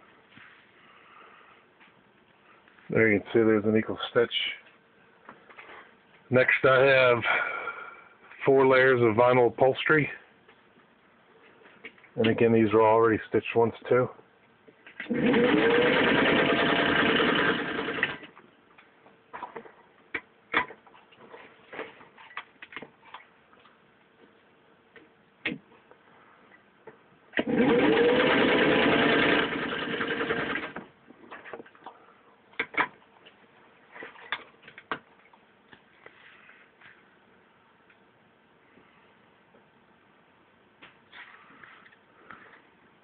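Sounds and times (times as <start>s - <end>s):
sewing machine motor running: 15.1s - 18.3s, 27.4s - 30.8s.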